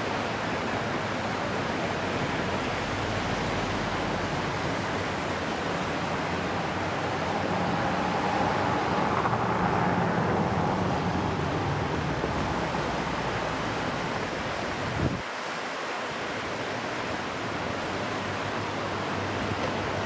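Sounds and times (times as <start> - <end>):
river water rushing: 0.0 - 20.0
wind rumbling on microphone: 6.5 - 15.3.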